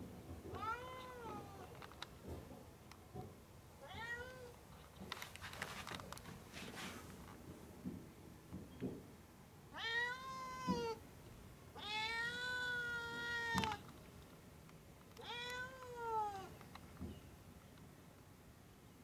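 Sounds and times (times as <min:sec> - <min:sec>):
cat meowing: 0:00.6 - 0:01.7, 0:03.8 - 0:04.6, 0:09.8 - 0:11.0, 0:11.8 - 0:13.8, 0:15.2 - 0:16.5.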